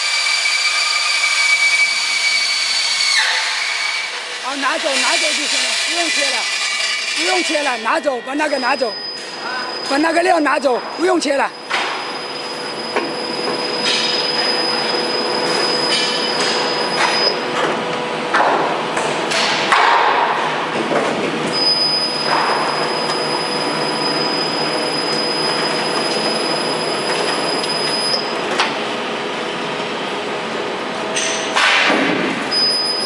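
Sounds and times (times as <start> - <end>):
thin high squeal: 0.9 - 10.3
roll forming machine humming: 4.0 - 19.3, 20.6 - 31.6.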